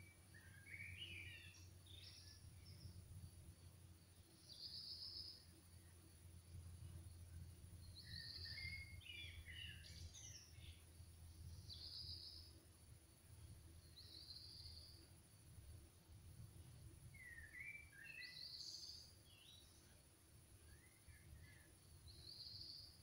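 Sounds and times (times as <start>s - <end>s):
steady low hum: 0.0s - 17.9s
birds chirping: 7.8s - 12.5s.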